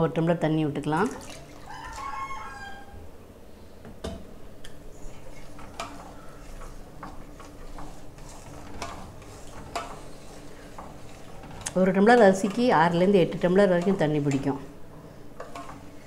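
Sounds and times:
ladle clinking and scraping pot: 5.2s - 12.7s, 15.4s - 15.8s.

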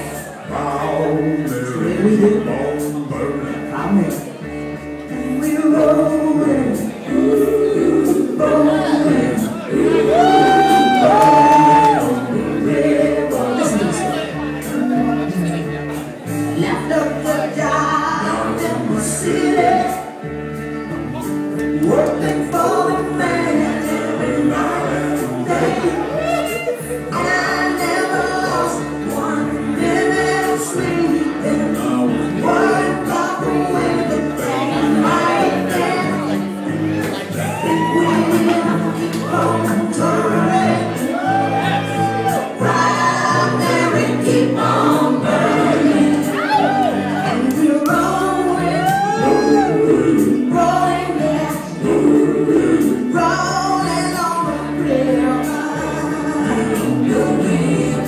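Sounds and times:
group of voices singing: 0.0s - 58.0s
musical accompaniment: 0.0s - 58.0s.

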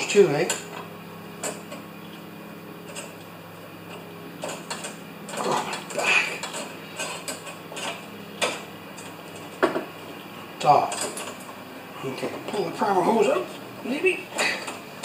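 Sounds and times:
small metal parts clicking and rattling: 2.9s - 3.3s, 3.9s - 9.7s, 10.8s - 11.6s.

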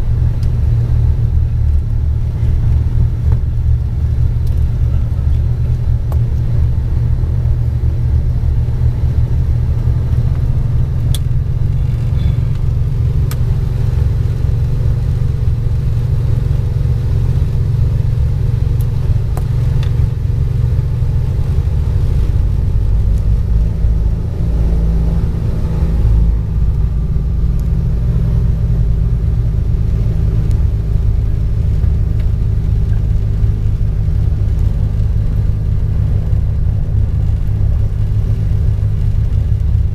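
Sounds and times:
aircraft engines droning: 0.0s - 39.9s.

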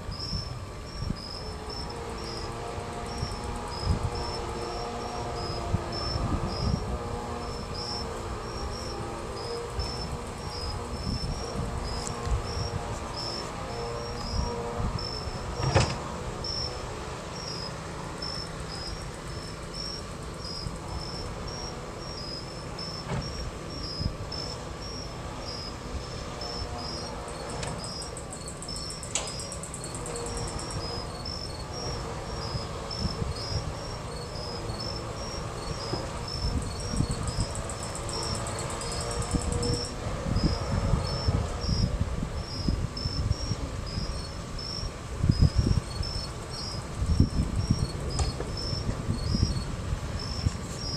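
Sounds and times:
buzzy insect trill: 0.0s - 50.9s
crickets chirping: 0.0s - 50.9s
low rumble with knocks: 14.1s - 16.7s, 22.9s - 24.2s, 47.0s - 49.6s.

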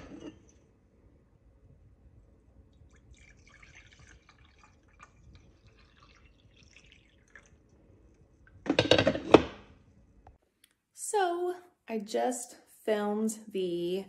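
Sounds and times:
coffee pouring into mug: 2.8s - 8.2s.

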